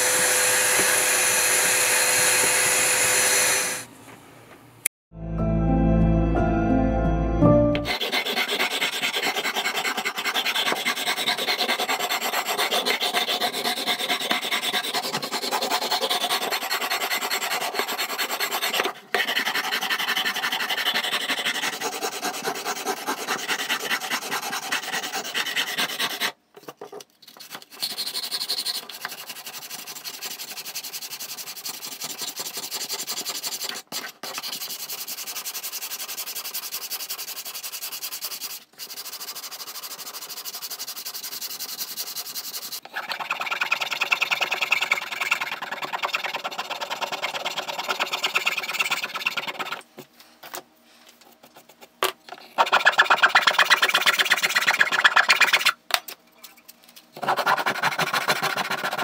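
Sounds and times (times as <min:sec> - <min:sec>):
sandpaper rasping on wood: 0:07.9 - 0:26.4, 0:27.5 - 0:49.8, 0:52.6 - 0:55.8, 0:57.2 - 0:59.0.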